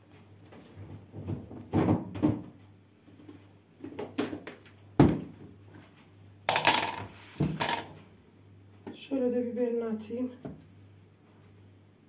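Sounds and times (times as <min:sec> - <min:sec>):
containers knocked on countertop: 0:06.5 - 0:07.9.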